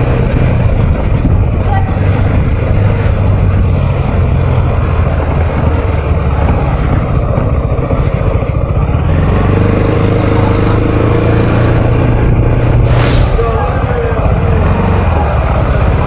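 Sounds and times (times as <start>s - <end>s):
scooter engine running: 0.0s - 12.7s
steady rushing noise: 12.7s - 15.8s.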